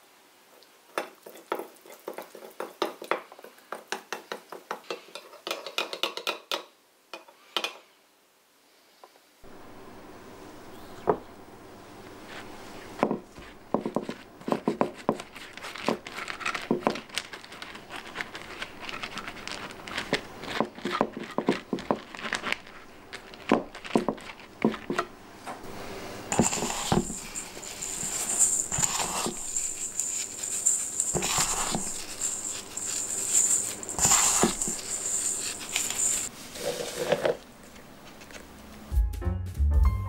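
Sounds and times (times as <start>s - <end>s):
sugar rustling in metal bowl: 12.1s - 25.1s, 26.2s - 37.4s.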